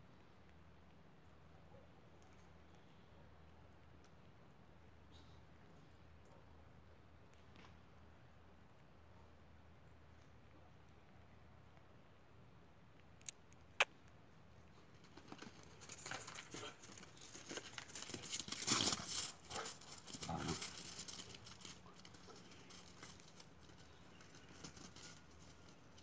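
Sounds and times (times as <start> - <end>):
dogs scuffling in snow: 15.6 - 26.0.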